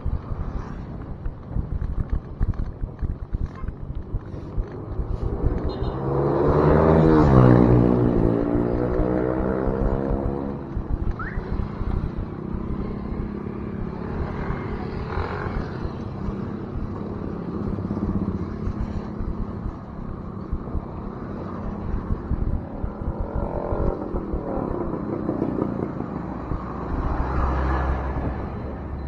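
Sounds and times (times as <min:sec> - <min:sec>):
road traffic: 0:00.0 - 0:29.0
wind on microphone: 0:00.0 - 0:29.0
vehicle passing: 0:04.3 - 0:10.8.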